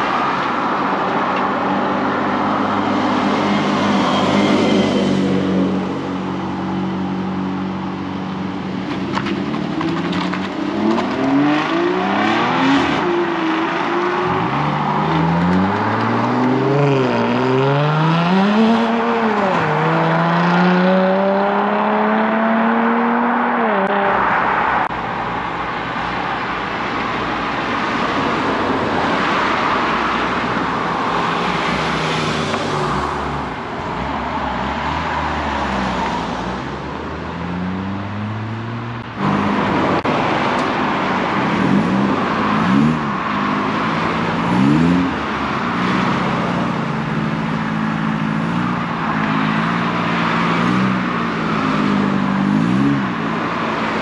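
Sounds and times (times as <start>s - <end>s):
road noise: 0.0s - 54.0s
steady car engine: 0.0s - 54.0s
car engine revving hard: 10.8s - 24.1s.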